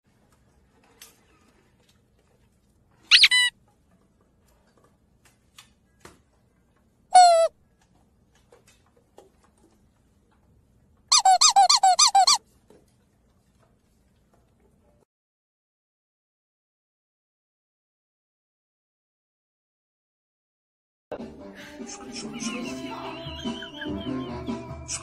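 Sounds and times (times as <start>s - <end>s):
puppy yipping: 3.1s - 3.5s, 7.2s - 7.5s, 11.1s - 12.4s.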